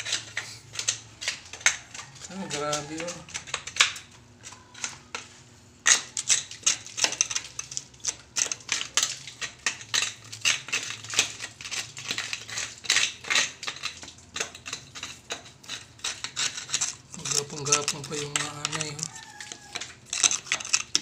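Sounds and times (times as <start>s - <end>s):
metal blade scraping wood: 8.1s - 21.0s.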